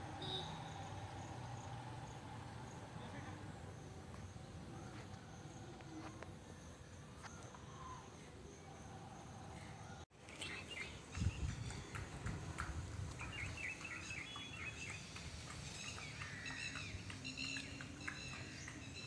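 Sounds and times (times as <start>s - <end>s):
small birds chirping: 9.6s - 12.3s, 13.0s - 19.0s.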